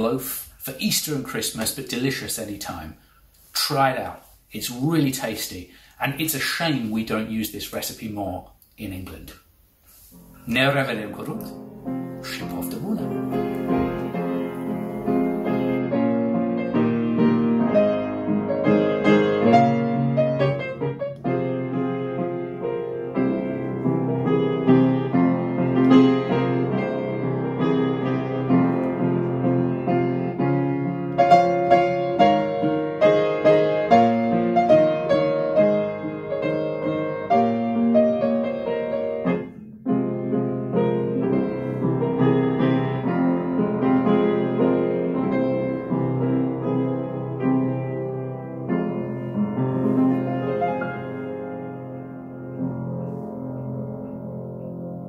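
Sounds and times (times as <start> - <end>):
solo piano music: 10.2 - 55.0.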